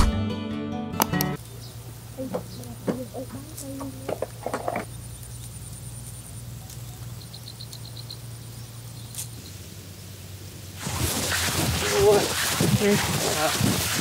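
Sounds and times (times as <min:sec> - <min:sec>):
small high chirps: 0:04.8 - 0:09.7.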